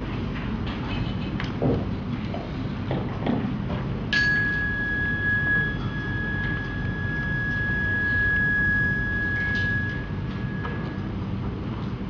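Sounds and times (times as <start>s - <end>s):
handheld bell ringing: 4.1s - 11.0s.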